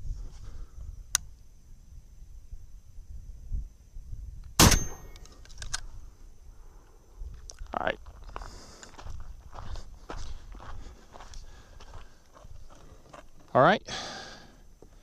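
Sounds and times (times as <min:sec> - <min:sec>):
shotgun shot: 0:04.6 - 0:05.2
metallic ring: 0:04.7 - 0:05.2.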